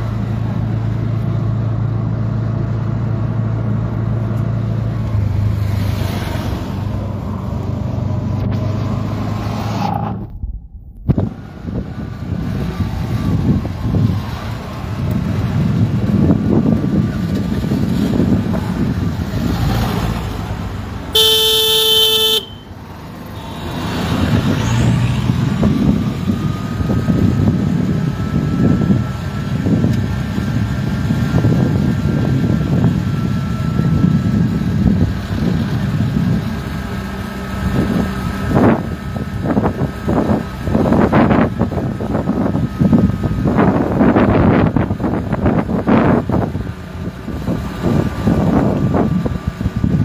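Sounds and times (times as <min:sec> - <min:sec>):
vehicle driving rumble: 0:00.0 - 0:50.0
car horn honk: 0:21.1 - 0:22.8.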